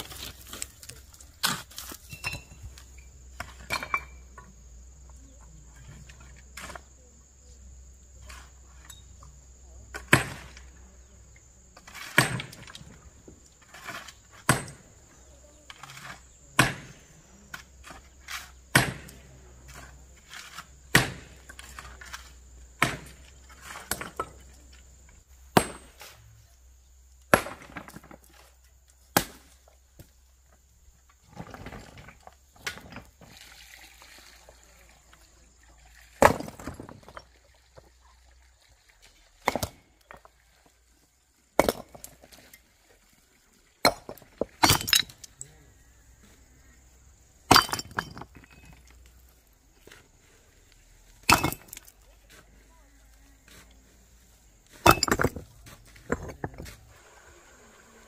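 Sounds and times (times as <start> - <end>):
hammer striking rock: 12.0 - 12.6, 14.4 - 14.8, 16.6 - 17.0, 18.7 - 19.2, 20.9 - 21.4, 22.8 - 23.2, 25.5 - 26.0, 27.3 - 28.2, 36.2 - 37.2, 39.4 - 39.8, 41.6 - 42.2, 43.8 - 45.1, 51.3 - 51.8, 54.8 - 55.4.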